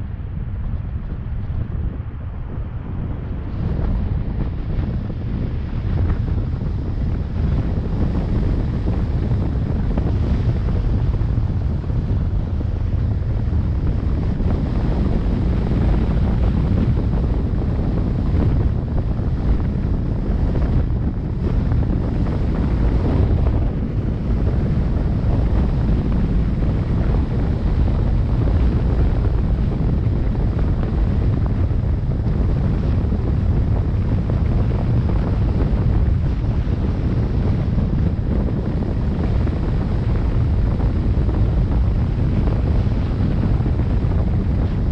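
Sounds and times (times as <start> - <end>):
wind buffeting microphone: 0.0 - 44.9.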